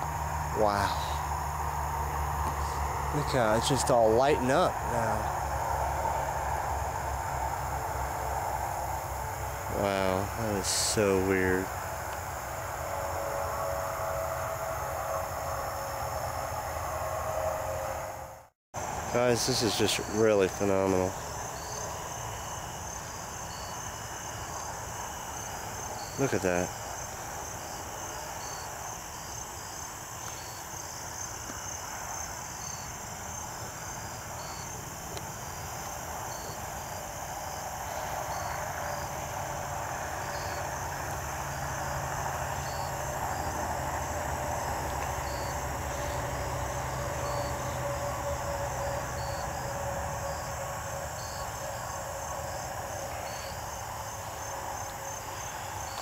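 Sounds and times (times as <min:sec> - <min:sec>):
low steady rumble: 0:00.0 - 0:20.4
crickets chirping: 0:00.0 - 0:56.0.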